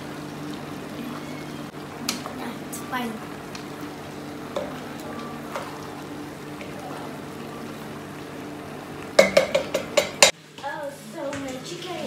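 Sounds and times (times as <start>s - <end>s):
spoon clanking against metal pot: 9.2s - 10.3s.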